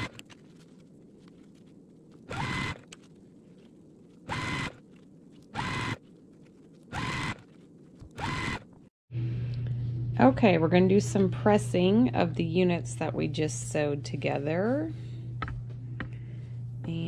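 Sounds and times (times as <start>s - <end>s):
steady low hum: 0.0s - 17.0s
electric sewing machine whirring: 2.3s - 2.9s, 4.3s - 4.8s, 5.6s - 6.0s, 6.9s - 7.4s, 8.2s - 8.6s.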